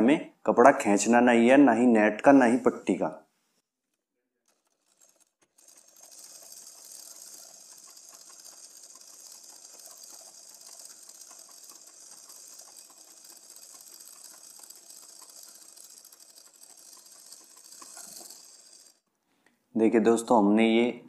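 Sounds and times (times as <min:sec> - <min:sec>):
sewing machine stitching: 0:03.8 - 0:19.1.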